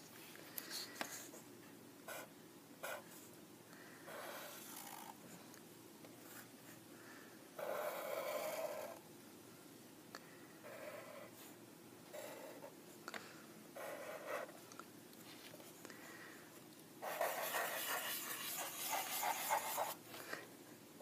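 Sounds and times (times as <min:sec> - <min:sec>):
marker squeaking on paper: 0:17.0 - 0:20.0.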